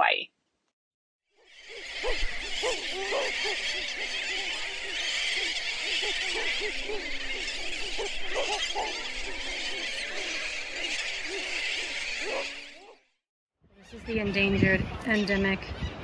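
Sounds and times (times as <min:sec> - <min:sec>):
seabird colony calling: 0:01.4 - 0:13.0.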